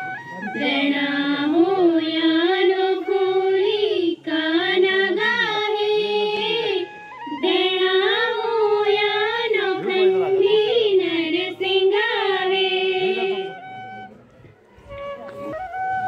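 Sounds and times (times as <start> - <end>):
girls singing slow song: 0.6 - 13.4.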